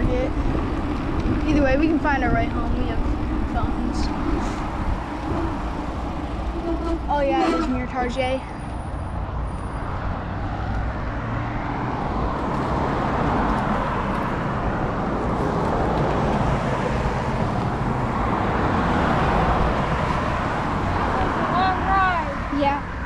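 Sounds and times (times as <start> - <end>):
bicycle riding on concrete: 0.0 - 9.0
cars passing on road: 0.0 - 23.0.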